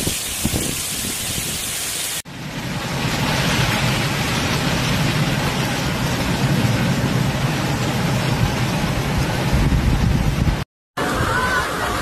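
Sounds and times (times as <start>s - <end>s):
wind buffeting microphone: 0.0s - 1.7s, 8.3s - 11.2s
heavy rain falling: 0.0s - 12.0s.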